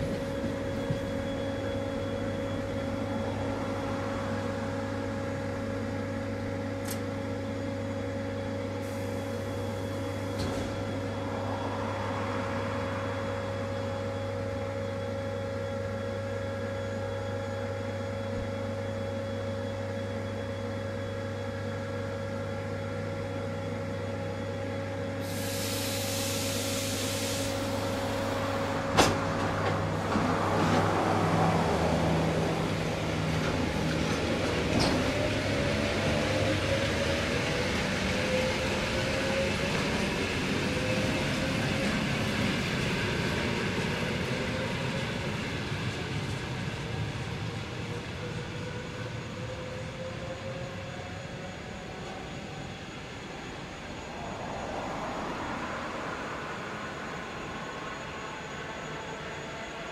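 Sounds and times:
electric train equipment humming: 0.0 - 59.9
air hiss: 25.2 - 28.3.

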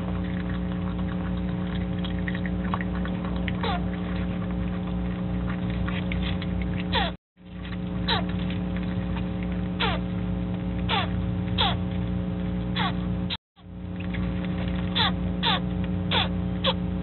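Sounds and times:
steady electrical hum: 0.0 - 17.0
baby opossum barking calls: 3.5 - 4.3, 6.9 - 7.2, 8.0 - 8.5, 9.2 - 10.1, 10.8 - 11.9, 12.8 - 13.7, 14.9 - 16.8.

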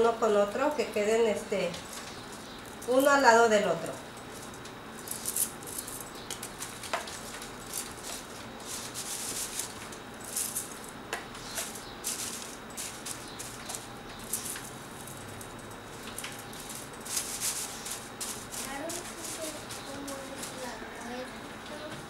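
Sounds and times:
paper rustling: 6.4 - 14.8, 16.0 - 20.7.

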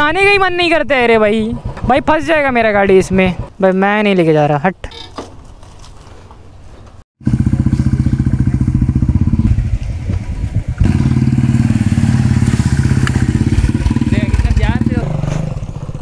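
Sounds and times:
motorcycle engine running: 7.2 - 16.0.

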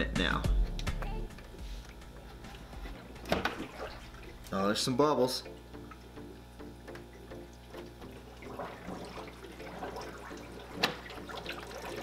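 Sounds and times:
water gurgling with air bubbles: 8.0 - 12.0.

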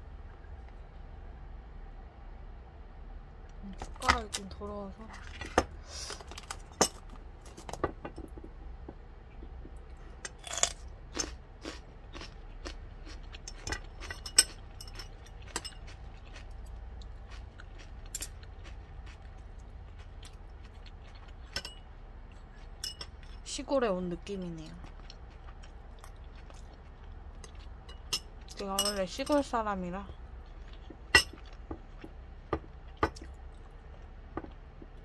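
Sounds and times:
crunching and chewing: 5.1 - 7.8, 9.0 - 23.5, 24.6 - 28.7, 30.1 - 35.0
utensils clinking on ceramic bowl: 13.4 - 16.0, 21.5 - 21.8, 22.8 - 23.4, 27.5 - 29.5, 31.1 - 31.6.

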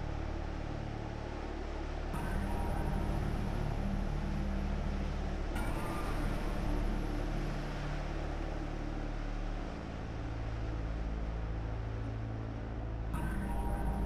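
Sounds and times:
deep rumbling drone: 0.0 - 14.0.

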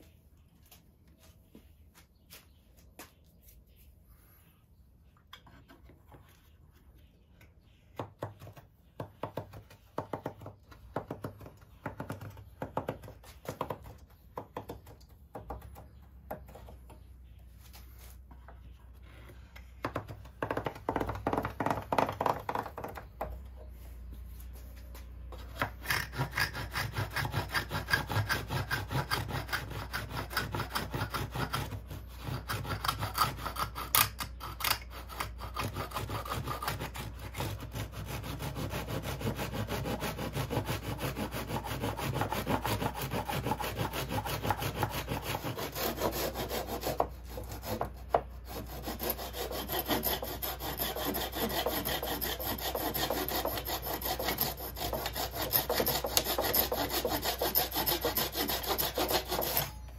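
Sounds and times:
handsaw cutting wood: 25.4 - 59.9.

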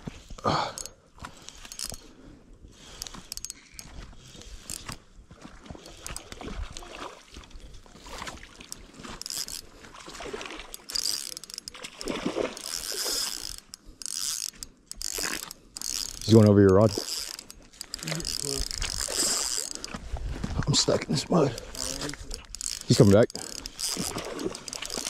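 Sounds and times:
fishing reel clicking and whirring: 0.5 - 5.0, 5.8 - 6.4, 8.1 - 9.8, 10.6 - 20.0, 21.2 - 25.0.

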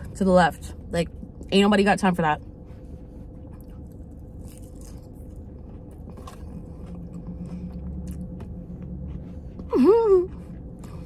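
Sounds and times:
steady low hum: 0.0 - 11.0
person chewing salad: 2.4 - 11.0
faint crunching of lettuce: 2.7 - 9.6.

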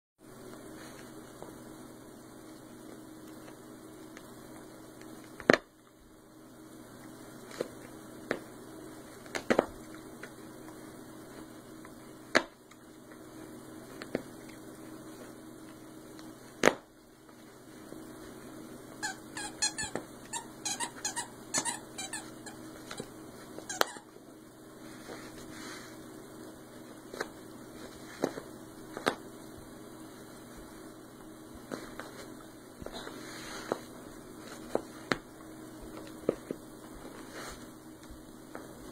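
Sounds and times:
squeaky toy squeaks: 19.0 - 22.2.

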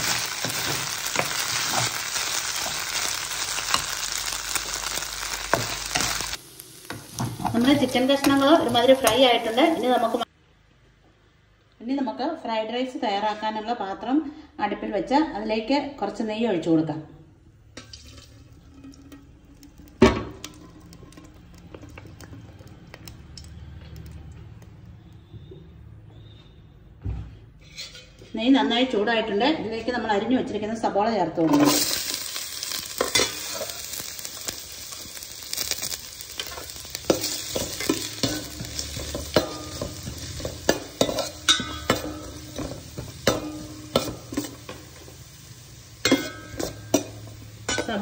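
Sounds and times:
chicken sizzling in hot oil: 0.0 - 10.3, 17.9 - 25.4, 31.5 - 48.0
liquid pouring into pan: 17.7 - 23.6
metal pan clunk on stovetop: 37.1 - 44.4.

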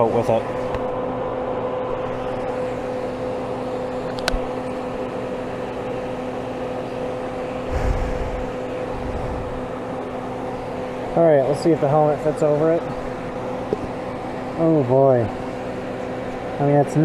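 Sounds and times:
electrical machine hum: 0.0 - 17.0
brief low rumble: 7.7 - 9.6.

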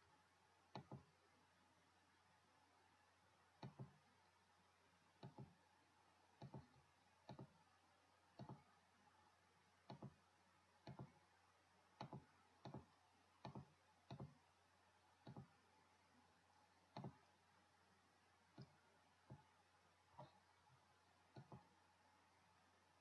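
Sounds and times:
computer mouse button clicking: 0.7 - 1.1, 8.4 - 8.6, 10.8 - 11.1, 12.0 - 14.4, 16.9 - 17.2.

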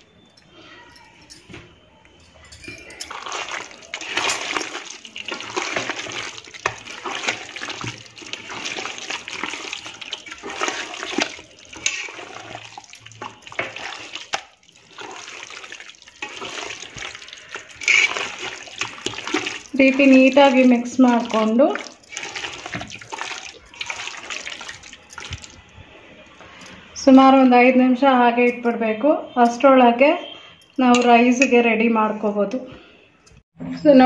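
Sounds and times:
hand squelching meat in marinade: 3.1 - 25.6.

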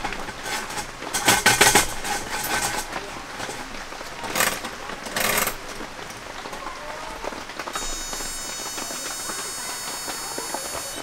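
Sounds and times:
high-pitched electric whine: 7.8 - 11.0.

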